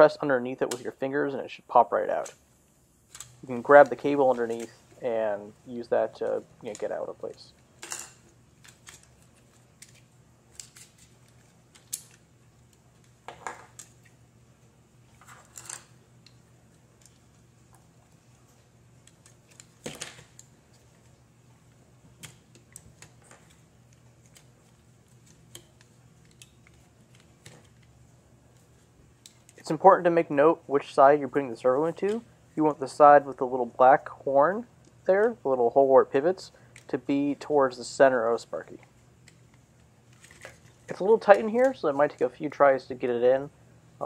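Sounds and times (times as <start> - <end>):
faint steady hum: 0.0 - 44.0.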